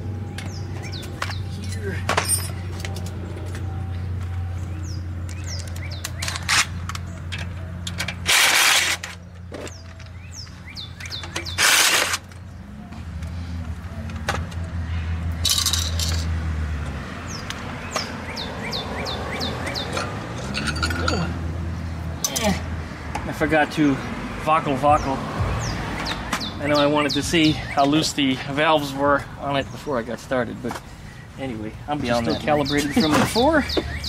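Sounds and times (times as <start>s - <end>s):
metallic clinks of parts and tools: 1.6s - 3.7s, 15.4s - 16.3s, 19.9s - 21.4s.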